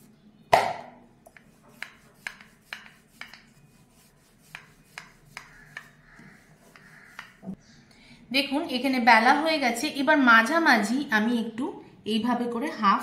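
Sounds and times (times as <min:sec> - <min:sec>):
rolling pin rolling dough: 0:01.3 - 0:07.6.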